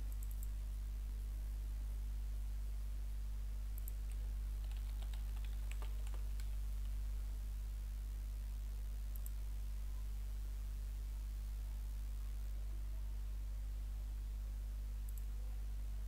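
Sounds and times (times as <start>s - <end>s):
low electrical hum: 0.0s - 16.0s
keyboard typing: 3.8s - 7.0s.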